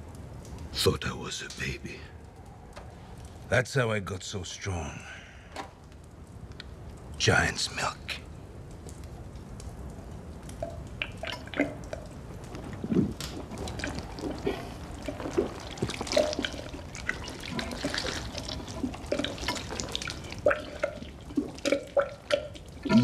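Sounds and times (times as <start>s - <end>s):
liquid dribbling: 9.8s - 23.0s
man gulping and slurping liquid: 11.0s - 23.0s.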